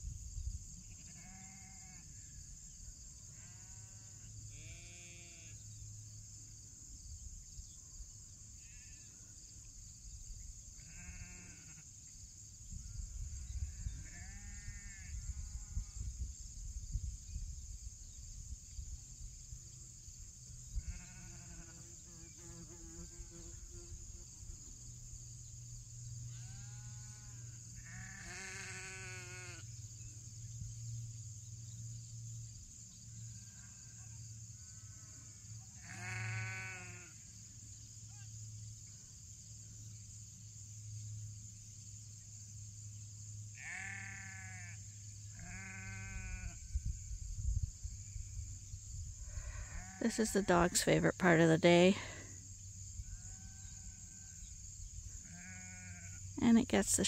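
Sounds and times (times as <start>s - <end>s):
sheep bleating: 0.9s - 2.0s, 4.6s - 5.5s, 10.8s - 11.8s, 27.8s - 29.6s, 35.8s - 37.2s, 43.6s - 44.7s, 45.4s - 46.6s, 49.4s - 50.5s, 55.2s - 56.2s.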